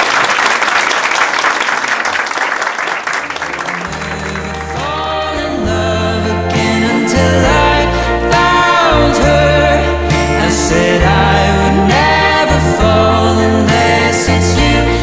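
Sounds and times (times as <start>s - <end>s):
people applauding: 0.0s - 5.3s
song with bass and vocals: 3.3s - 15.0s.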